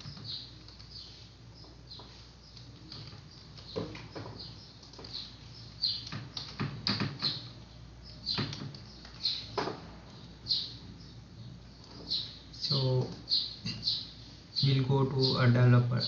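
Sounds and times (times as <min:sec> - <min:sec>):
keyboard keystrokes: 0:02.5 - 0:04.2, 0:05.9 - 0:07.4, 0:08.3 - 0:09.4.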